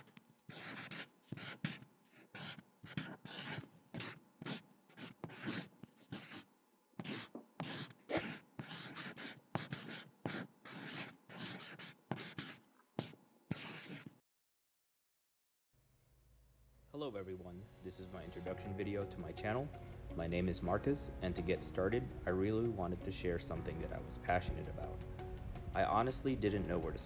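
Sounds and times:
scratchy drawing strokes: 0.0 - 14.2.

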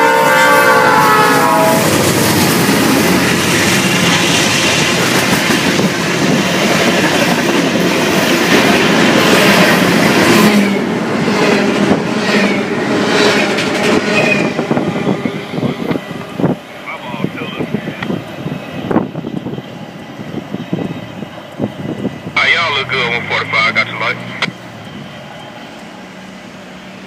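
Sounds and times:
freight train rumbling past: 0.0 - 27.0
train wheels clattering on rails: 1.8 - 16.6.

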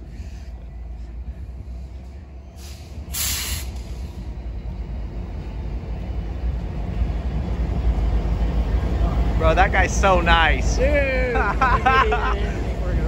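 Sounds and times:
diesel locomotives rumbling: 0.0 - 13.0
burst of hiss: 2.6 - 4.2.

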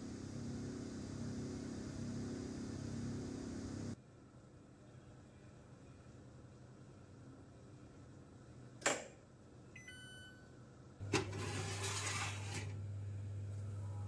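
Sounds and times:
steady low hum: 10.2 - 14.0.

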